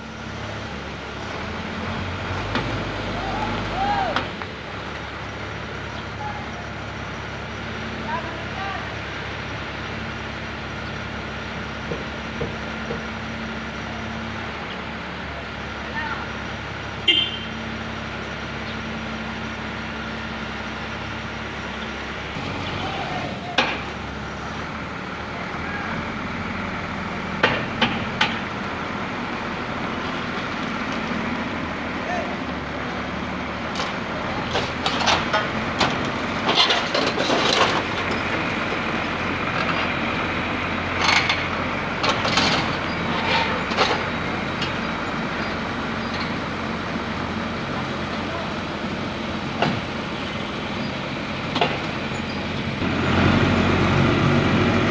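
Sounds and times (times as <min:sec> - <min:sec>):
diesel engine running: 0:00.0 - 0:54.9.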